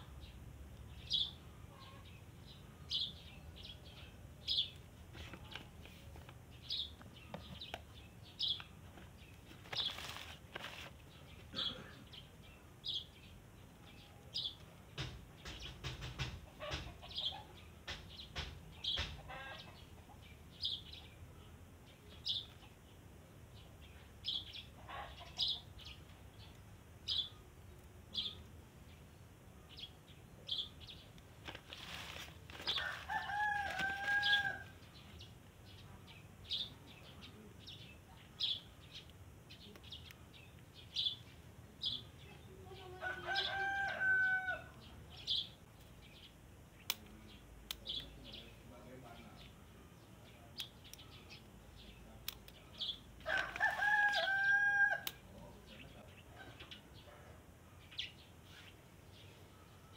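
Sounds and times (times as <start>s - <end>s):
sharp clicks and rustles: 8.5s - 11.5s, 31.1s - 34.5s
rooster crowing: 32.7s - 34.8s, 42.9s - 44.8s, 53.2s - 55.2s.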